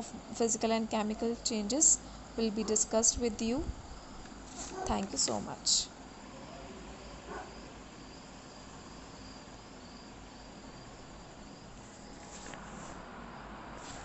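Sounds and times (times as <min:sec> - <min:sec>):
crickets trilling: 0:00.0 - 0:13.8
background hiss: 0:00.0 - 0:14.0.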